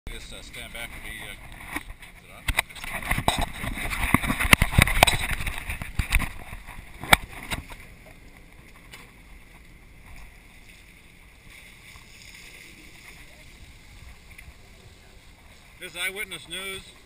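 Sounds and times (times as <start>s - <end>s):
boat noise at sea: 0.1s - 17.0s.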